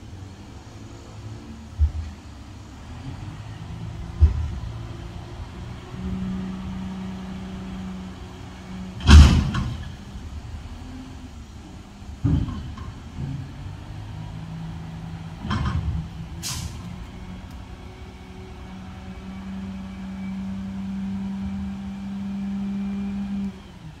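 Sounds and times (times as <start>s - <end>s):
truck engine and hydraulics hum: 0.0s - 24.0s
garbage truck arm banging cart: 9.0s - 10.0s, 12.2s - 13.8s
air brake hiss: 16.4s - 16.9s.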